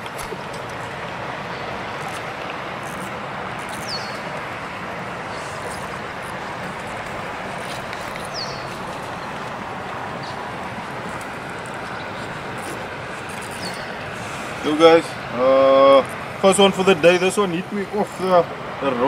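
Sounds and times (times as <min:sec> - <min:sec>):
rushing water: 0:00.0 - 0:19.0.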